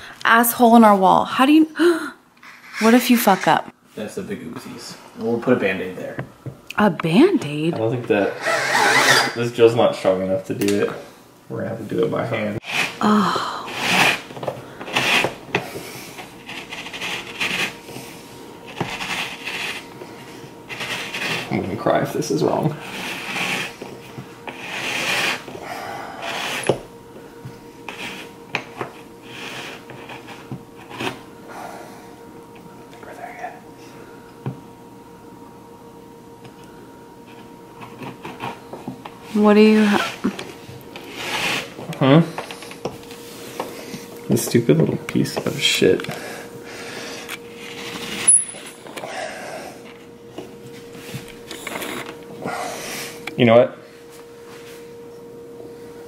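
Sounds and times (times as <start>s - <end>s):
hole cutter rasping through drywall: 2.4s - 3.6s, 8.3s - 9.4s, 12.6s - 13.0s, 13.7s - 18.0s, 18.7s - 19.9s, 20.7s - 21.6s, 22.7s - 23.9s, 24.5s - 26.8s, 27.9s - 28.3s, 29.2s - 31.2s, 41.0s - 41.8s.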